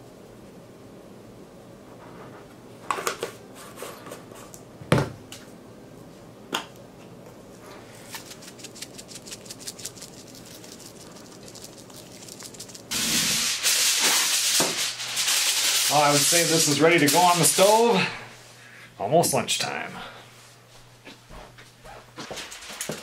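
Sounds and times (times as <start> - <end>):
quick light ticks of shaking: 8.2 - 12.9.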